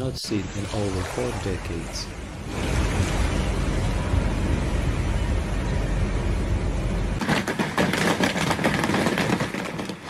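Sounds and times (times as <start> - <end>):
hail pelting the ground: 7.2 - 10.0.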